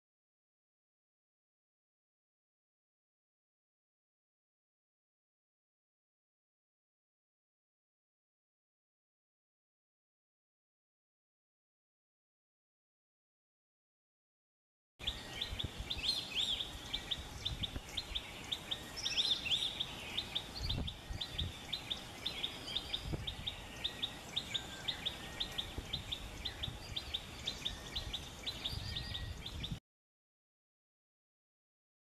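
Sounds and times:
bird chirping: 0:15.0 - 0:29.8.

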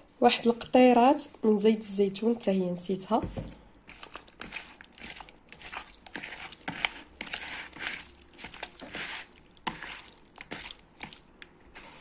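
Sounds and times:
hand squishing raw fish in bowl: 0:03.8 - 0:12.0.

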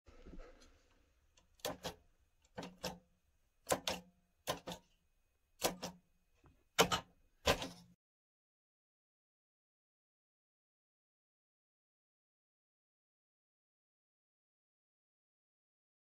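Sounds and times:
sharp clicks in pairs: 0:05.6 - 0:06.0.

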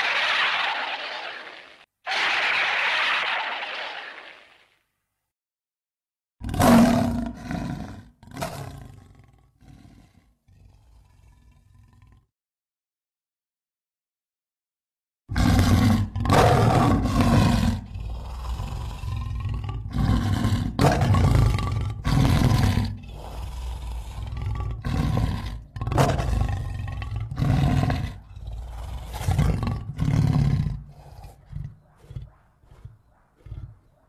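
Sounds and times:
monster roaring: 0:00.0 - 0:04.6, 0:15.3 - 0:33.7.

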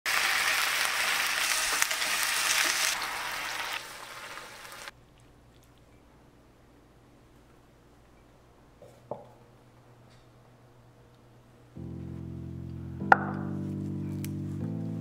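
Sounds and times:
beef sizzling in oil: 0:00.1 - 0:04.9.

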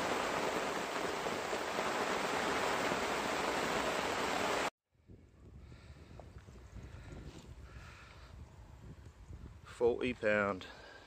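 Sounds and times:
heavy rain on water: 0:00.0 - 0:04.7.

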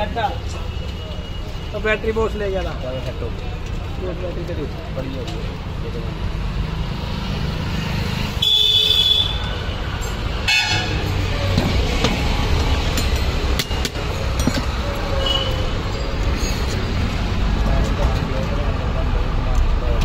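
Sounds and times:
traffic engines rumbling: 0:00.0 - 0:20.0
vehicle horns tooting: 0:08.4 - 0:09.8, 0:10.4 - 0:11.1, 0:15.1 - 0:15.8.

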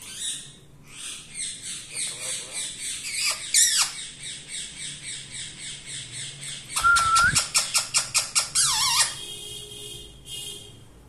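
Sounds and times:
parakeet calling: 0:00.0 - 0:09.2.

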